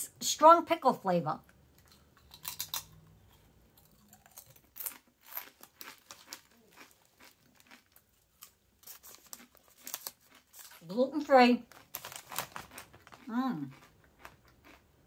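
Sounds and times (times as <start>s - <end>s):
potato chips crunching: 1.8s - 14.9s
plastic chip bag crinkling: 3.8s - 14.8s.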